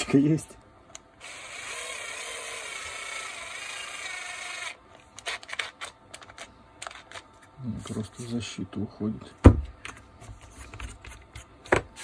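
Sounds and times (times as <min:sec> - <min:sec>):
cordless drill whirring: 0:01.2 - 0:07.2.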